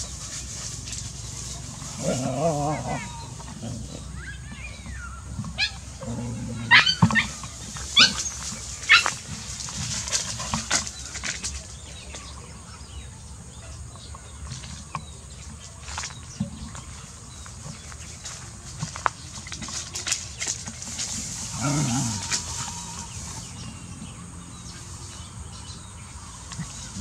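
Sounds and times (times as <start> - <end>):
rustling: 0.0 - 12.3, 14.4 - 23.9
dogs yelping: 1.9 - 9.3, 21.5 - 23.1.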